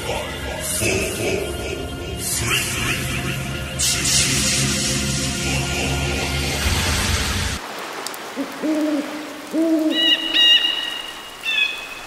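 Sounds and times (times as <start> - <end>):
music: 0.0 - 7.6
owl hooting: 8.6 - 11.8
thin high whistling calls: 8.6 - 12.0.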